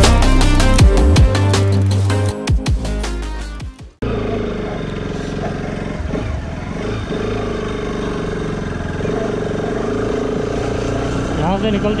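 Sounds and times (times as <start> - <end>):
motorcycle engine running: 4.0 - 12.0.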